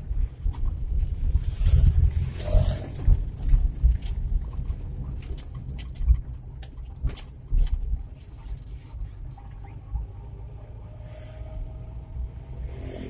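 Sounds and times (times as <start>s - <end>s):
wind noise rush: 0.0s - 5.2s
engine and road rumble: 0.0s - 13.0s
cab rattles and knocks: 2.9s - 8.8s.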